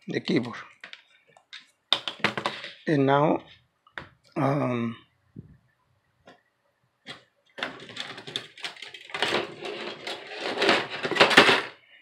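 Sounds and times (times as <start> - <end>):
laptop parts clattering: 0.4 - 2.8, 7.1 - 11.8.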